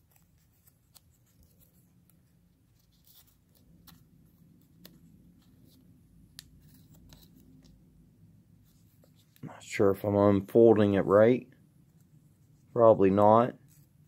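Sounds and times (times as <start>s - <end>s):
paper rustling: 0.0s - 7.8s, 11.9s - 14.0s.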